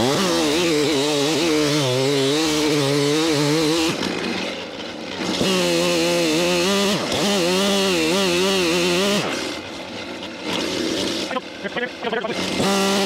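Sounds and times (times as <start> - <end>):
chainsaw cutting wood: 0.0 - 13.0.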